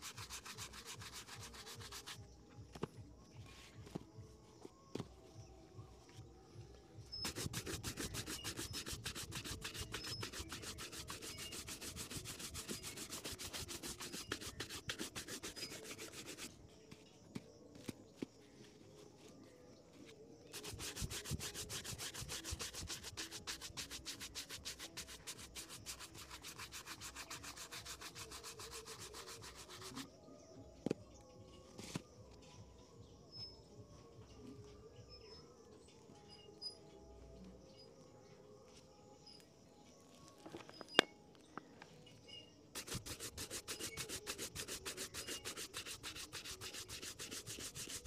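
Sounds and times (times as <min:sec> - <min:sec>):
shoe brush scrubbing leather: 0:00.0 - 0:02.2, 0:07.2 - 0:16.5, 0:20.5 - 0:30.1, 0:42.8 - 0:48.0.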